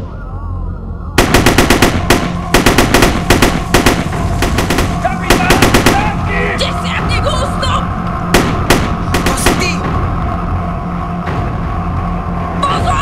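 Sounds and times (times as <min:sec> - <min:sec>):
low steady rumble: 0:00.0 - 0:06.5
automatic gunfire bursts: 0:01.2 - 0:06.2.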